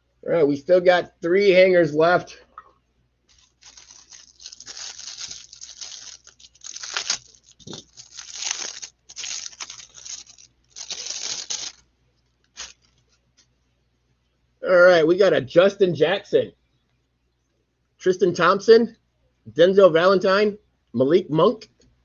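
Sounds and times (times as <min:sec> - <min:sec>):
packaging being torn open: 0:03.3 - 0:11.8, 0:12.5 - 0:13.0.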